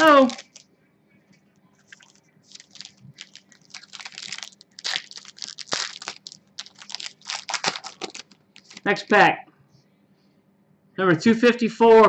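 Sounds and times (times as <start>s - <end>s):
foil wrapper crinkling: 0.0s - 0.6s, 1.8s - 8.9s.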